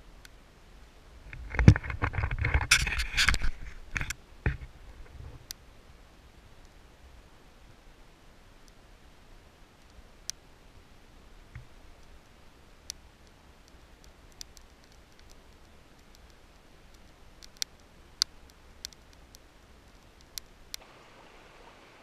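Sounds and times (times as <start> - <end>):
small fire crackling: 0.0 - 22.0
fire popping and snapping: 11.5 - 20.9.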